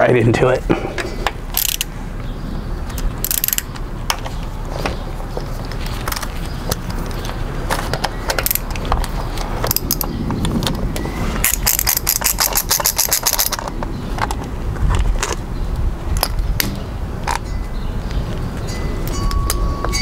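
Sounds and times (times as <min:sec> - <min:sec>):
metal bolts and tools clinking: 0:01.0 - 0:01.9, 0:02.9 - 0:04.4, 0:05.9 - 0:10.7, 0:11.4 - 0:14.4
ratcheting driver clicking: 0:01.5 - 0:01.9, 0:02.9 - 0:03.8, 0:08.0 - 0:10.1, 0:11.4 - 0:13.8.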